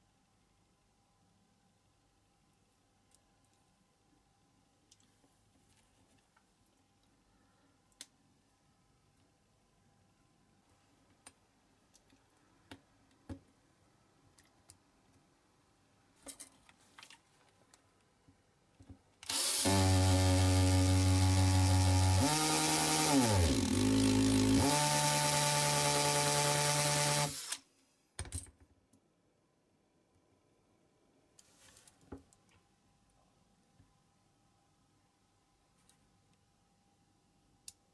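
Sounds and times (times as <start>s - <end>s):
cordless drill running: 19.2s - 27.6s.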